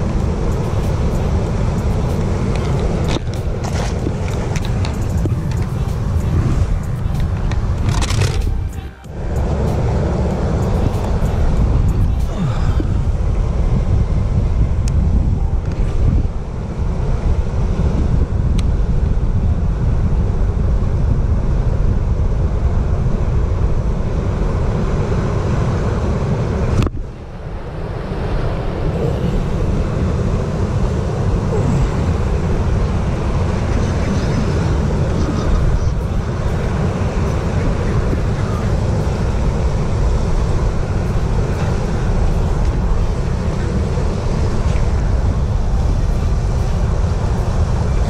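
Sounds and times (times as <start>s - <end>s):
outboard boat motor running: 0.0s - 13.8s
wind noise on microphone: 0.0s - 48.0s.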